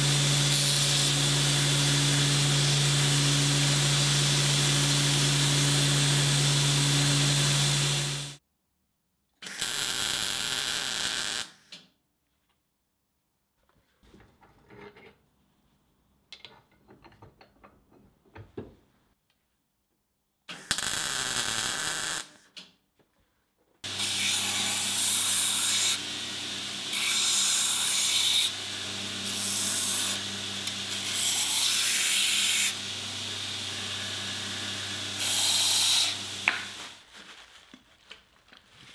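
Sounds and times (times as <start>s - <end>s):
belt grinder running: 0.0s - 8.4s, 23.8s - 36.8s.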